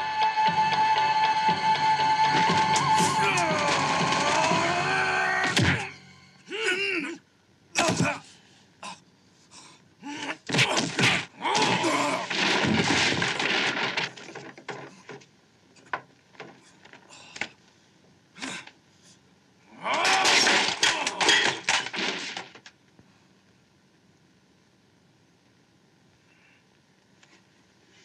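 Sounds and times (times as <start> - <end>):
fight hits and crashes: 5.4 - 5.9, 10.5 - 15.2, 19.9 - 22.6.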